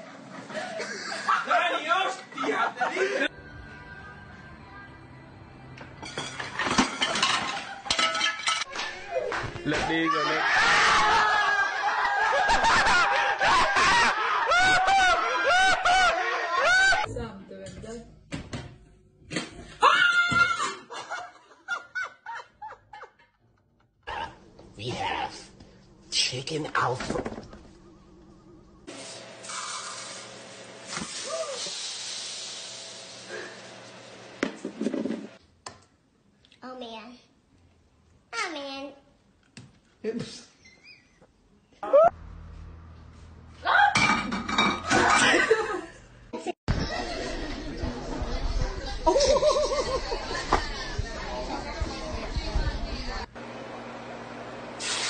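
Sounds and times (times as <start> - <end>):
high-pitched cackling laughter: 49.0 - 50.6.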